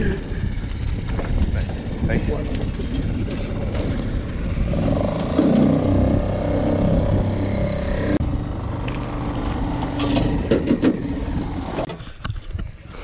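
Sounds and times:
boat motor droning: 3.4 - 11.8.

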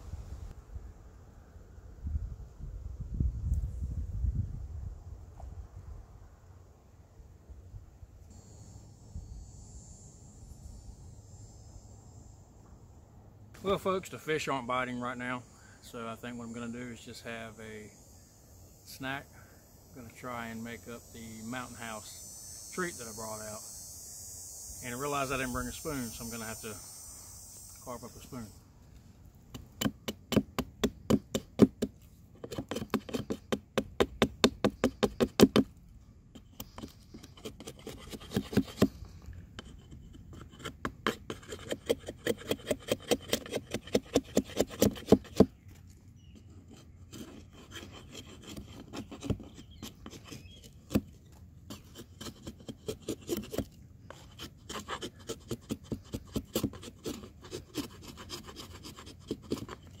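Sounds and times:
hatchet shaving wood: 29.5 - 45.6, 46.4 - 60.0.

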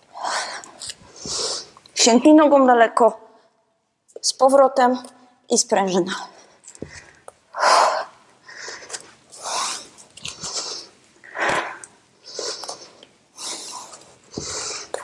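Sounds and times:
woman breathing forcefully: 0.1 - 1.7, 6.3 - 15.0.

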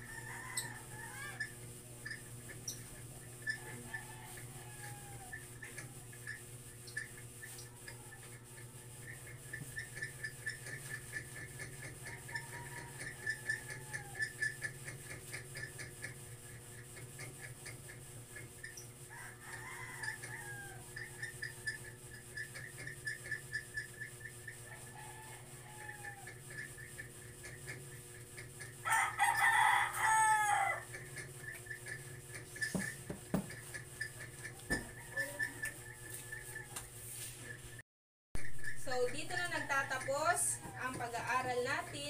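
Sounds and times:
steady electrical hum: 0.0 - 37.8, 38.4 - 42.0
gliding animal call: 34.1 - 37.6.

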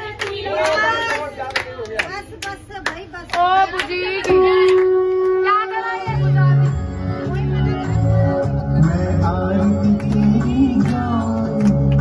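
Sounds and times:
people clapping in rhythm: 0.0 - 12.0.

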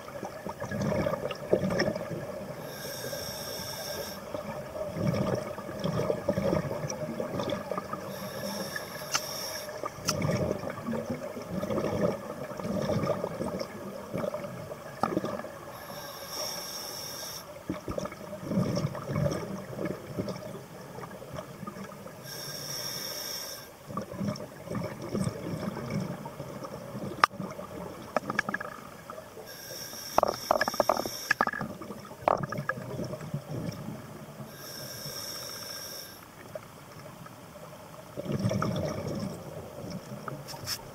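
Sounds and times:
regulator inhalation hiss: 2.6 - 4.3, 8.1 - 9.8, 15.7 - 17.6, 22.2 - 23.7, 29.5 - 31.5, 34.5 - 36.3.

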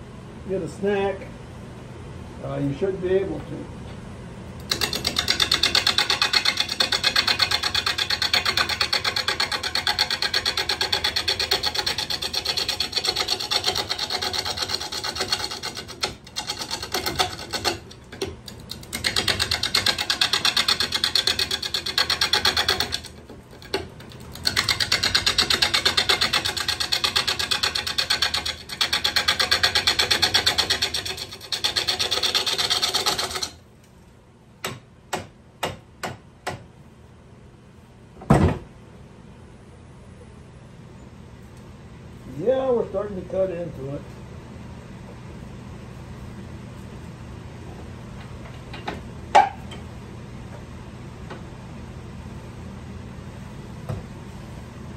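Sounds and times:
lathe tool rattling against wood: 4.6 - 33.6.

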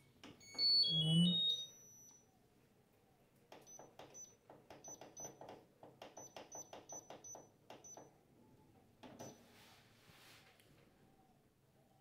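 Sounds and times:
washing machine ticking and knocking: 3.5 - 8.2.

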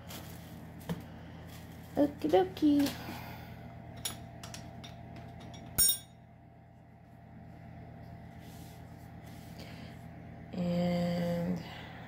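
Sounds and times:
faint steady hum: 0.0 - 12.0
kitchenware clinking: 3.9 - 6.2.

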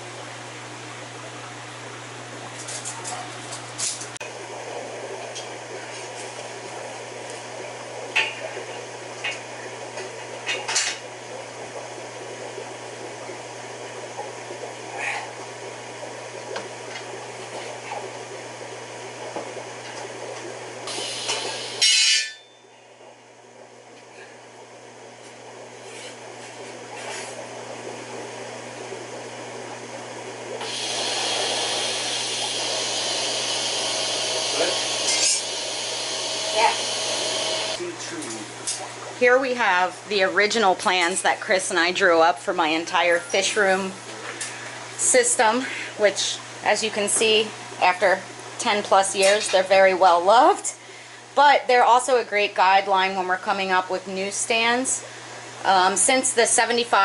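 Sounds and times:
ventilation fans humming: 0.0 - 57.0
welding torch arc hissing: 30.6 - 37.8.

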